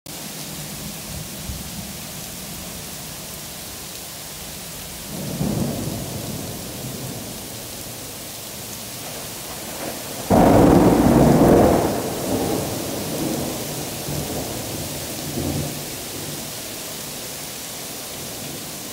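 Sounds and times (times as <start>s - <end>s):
heavy rain falling: 0.1s - 18.9s
thunder rumbling: 5.0s - 16.5s
loud thunderclap: 5.1s - 7.4s, 9.0s - 16.3s.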